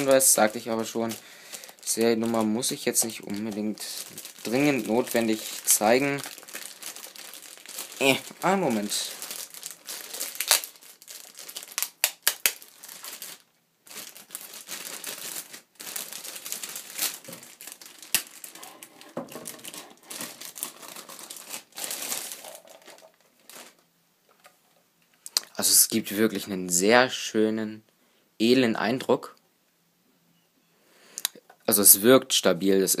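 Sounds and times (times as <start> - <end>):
plastic bag crinkling: 0.0 - 24.5.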